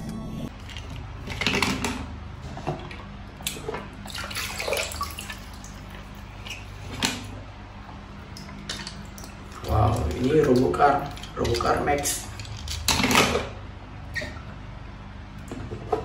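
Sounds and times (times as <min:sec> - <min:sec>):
water splashing and dripping: 0:03.5 - 0:06.6, 0:08.3 - 0:12.0.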